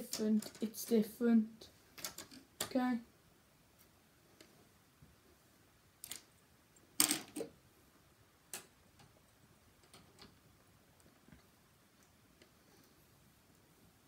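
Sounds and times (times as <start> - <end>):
plastic toy bricks clicking: 0.1 - 0.6, 2.0 - 2.7, 7.0 - 7.5.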